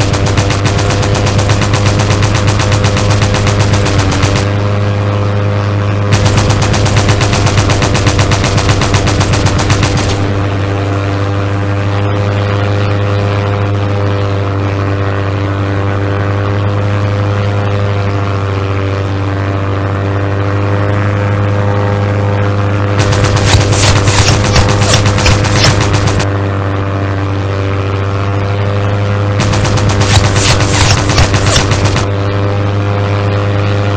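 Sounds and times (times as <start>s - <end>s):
rapid machine-gun fire: 0.0s - 4.6s, 6.1s - 10.8s, 23.0s - 26.3s, 29.4s - 32.3s
steady engine-like hum: 0.0s - 33.9s.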